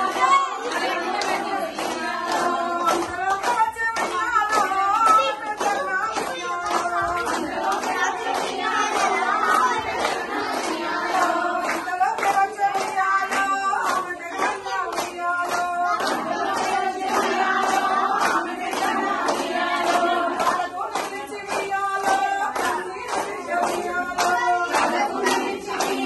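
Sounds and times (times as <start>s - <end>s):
women clapping in time: 0.0s - 26.0s
women singing a folk song: 0.0s - 26.0s.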